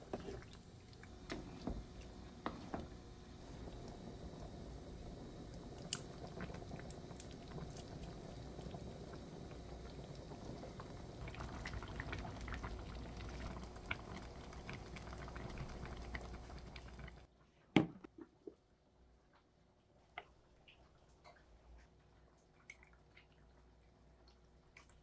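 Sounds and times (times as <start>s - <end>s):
thick sauce bubbling in pan: 0.0s - 17.3s.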